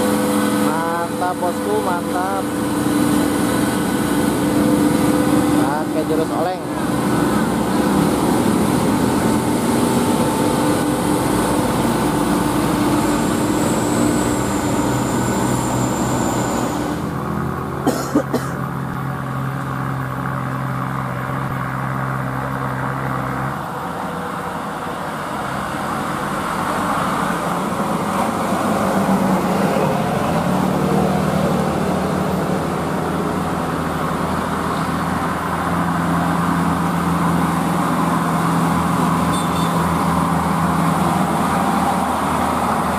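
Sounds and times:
diesel truck engine labouring: 0.0 - 42.9.

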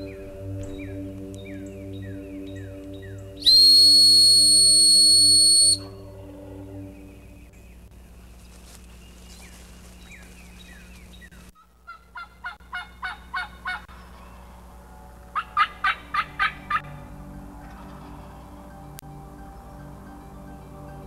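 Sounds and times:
songbird chirps: 0.0 - 21.0
turkey yelps: 11.9 - 13.8, 15.4 - 16.9.

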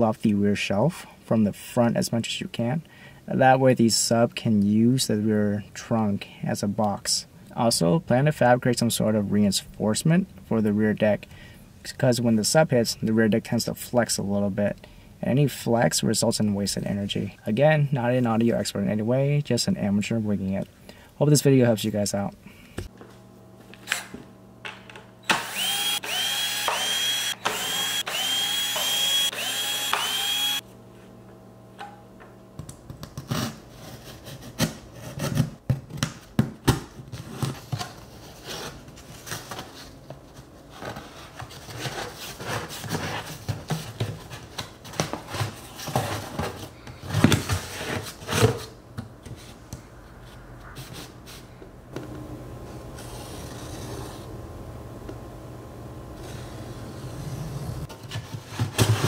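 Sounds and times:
cordless drill whining: 25.2 - 30.6.

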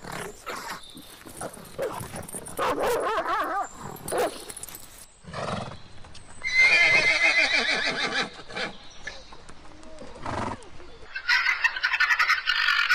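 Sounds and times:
dog barking and whining: 0.3 - 4.5
horse whinnying: 6.4 - 8.7.

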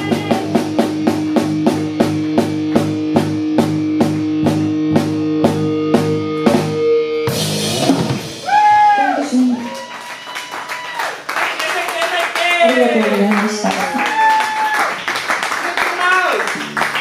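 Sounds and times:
rock band playing: 0.0 - 10.8, 15.0 - 17.0.

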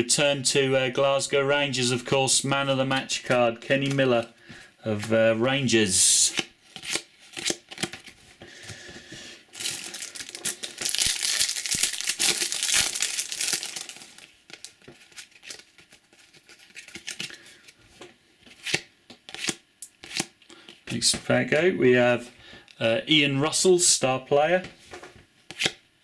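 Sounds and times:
cards being handled: 6.3 - 8.9, 9.6 - 17.8, 18.4 - 21.2, 25.5 - 25.8
foil pack tearing and crinkling: 9.5 - 17.4.

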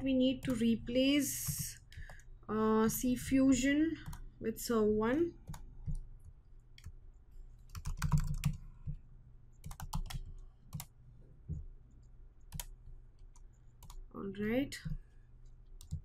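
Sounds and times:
typing on keyboard: 7.7 - 8.6, 9.6 - 10.9, 12.5 - 12.7, 13.3 - 14.0, 15.8 - 16.0.

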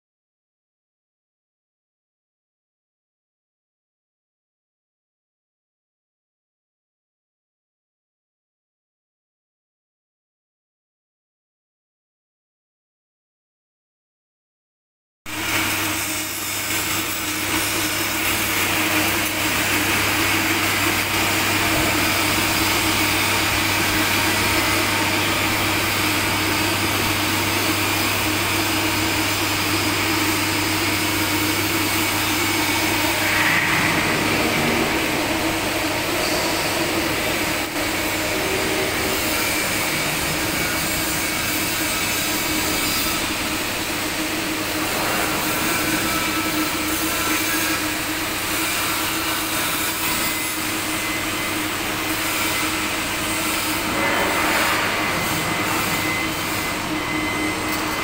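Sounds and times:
machine hum: 15.3 - 58.0.

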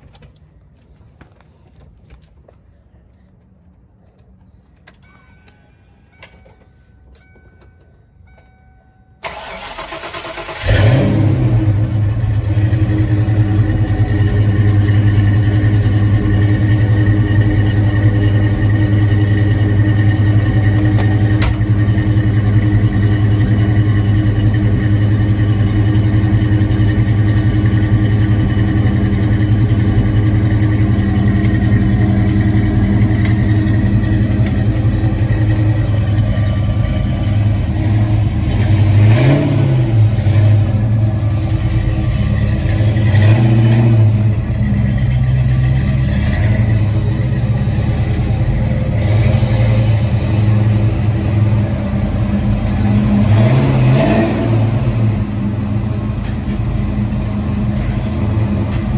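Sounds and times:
car engine starting and idling: 0.0 - 58.9
engine cranking: 9.2 - 11.1.

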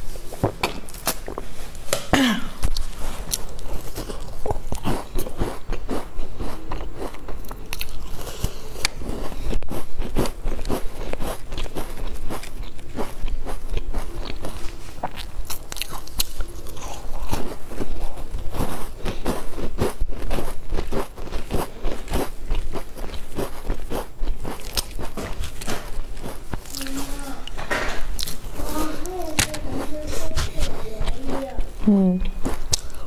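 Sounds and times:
crunchy cookie chewing: 0.2 - 33.0.

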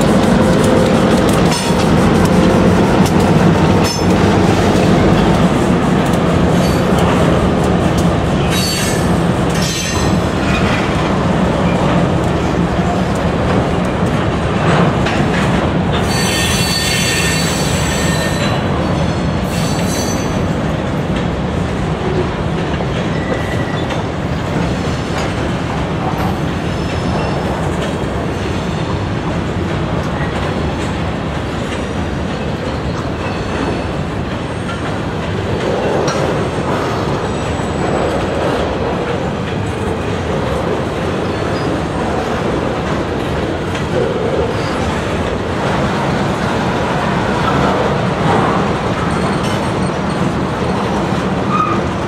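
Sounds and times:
freight cars rumbling and clattering: 0.0 - 52.0
wheel squeal: 16.0 - 18.6.

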